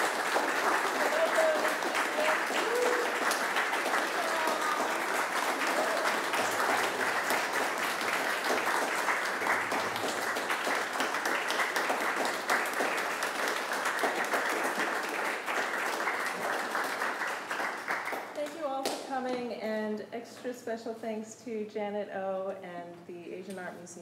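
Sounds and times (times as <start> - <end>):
audience applauding: 0.0 - 18.4.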